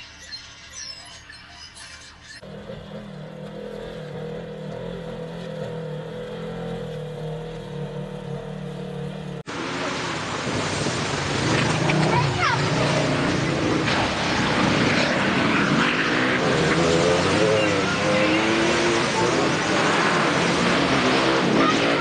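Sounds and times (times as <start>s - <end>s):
quad engines: 0.0s - 22.0s
off-road vehicle engine running: 2.2s - 22.0s
water splashing: 9.5s - 22.0s.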